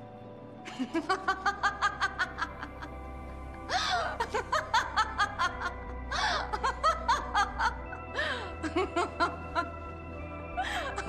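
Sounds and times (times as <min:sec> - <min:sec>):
woman laughing hard: 0:00.7 - 0:03.0, 0:03.7 - 0:09.8
woman gasping for breath: 0:03.7 - 0:04.2, 0:06.1 - 0:06.6, 0:08.1 - 0:08.6, 0:10.6 - 0:11.0.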